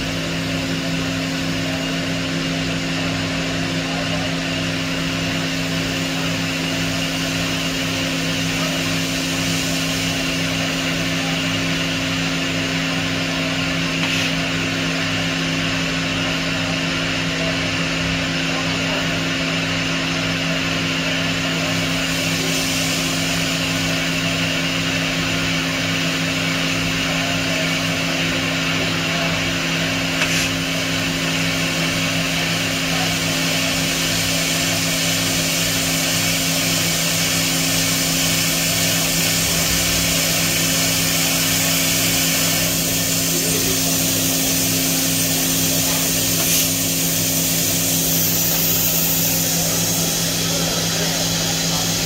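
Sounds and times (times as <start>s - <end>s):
high hiss: 35.4s - 52.0s.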